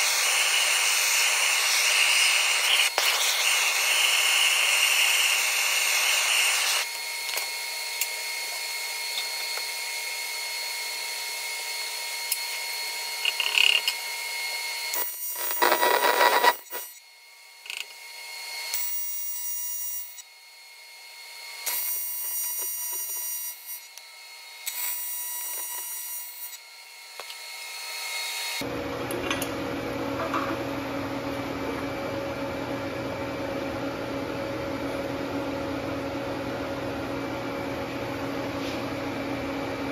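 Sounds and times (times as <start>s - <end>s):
welding arc buzzing: 0.0s - 17.0s, 18.7s - 20.3s, 21.6s - 24.0s, 24.6s - 28.7s.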